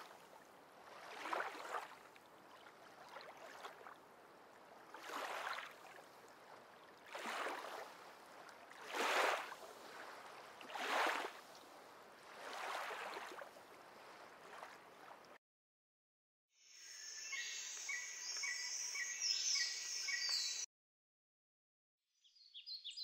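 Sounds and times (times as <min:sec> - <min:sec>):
small waves washing onto beach: 0:00.0 - 0:15.4.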